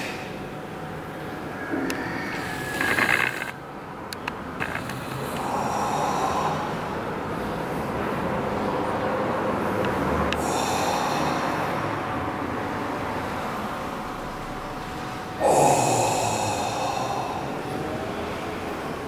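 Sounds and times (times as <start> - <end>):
man breathing heavily: 0.0 - 0.6, 4.8 - 8.9, 9.6 - 14.2, 15.2 - 18.4
steady background noise: 0.0 - 19.0.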